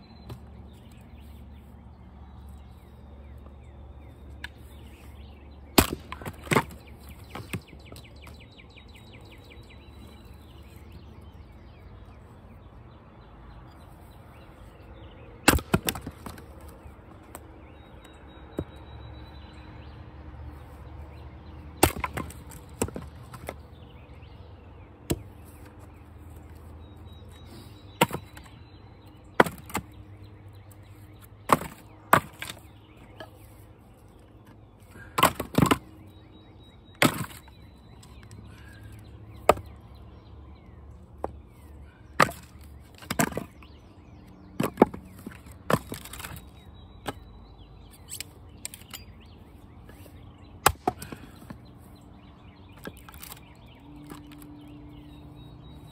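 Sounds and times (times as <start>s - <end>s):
axe splitting firewood: 5.7s - 8.3s, 15.4s - 16.4s, 21.8s - 23.6s, 25.0s - 25.4s, 27.3s - 28.6s, 29.3s - 30.0s, 31.4s - 33.4s, 34.9s - 35.9s, 36.9s - 38.7s, 39.4s - 39.8s, 42.0s - 43.7s, 44.5s - 47.2s, 50.6s - 51.6s, 52.8s - 53.4s.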